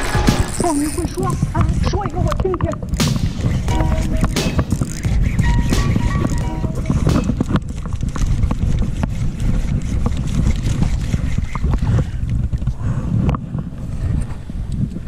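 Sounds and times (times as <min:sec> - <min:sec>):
wind buffeting microphone: 0:00.0 - 0:15.0
fishing reel clicks: 0:00.4 - 0:01.4, 0:04.0 - 0:06.9.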